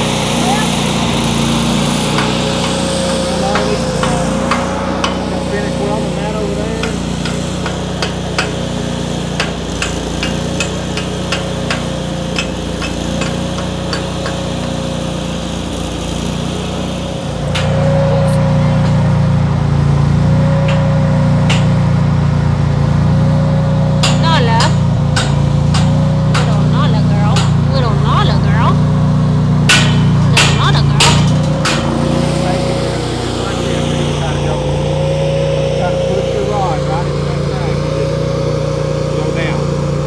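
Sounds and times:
welder engine running: 0:00.0 - 0:40.0
sharp welding clicks: 0:01.5 - 0:05.3, 0:06.8 - 0:18.0, 0:20.6 - 0:22.0, 0:24.0 - 0:27.8, 0:29.6 - 0:32.1.

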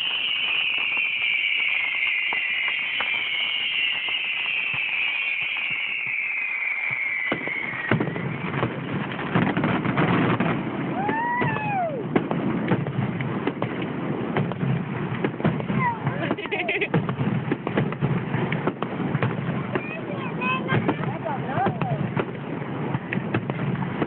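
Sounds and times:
rising and falling whistle: 0:00.0 - 0:08.8, 0:11.0 - 0:12.1
firework bangs and crackling: 0:00.0 - 0:24.0
whistling firework shell: 0:00.0 - 0:24.0.

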